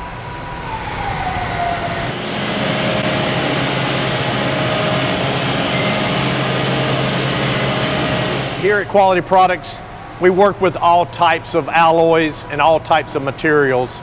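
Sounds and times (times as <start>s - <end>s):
whine sliding down in pitch: 0.0s - 11.0s
running machinery hum and hiss: 1.9s - 14.0s
held machine tones: 2.1s - 9.9s.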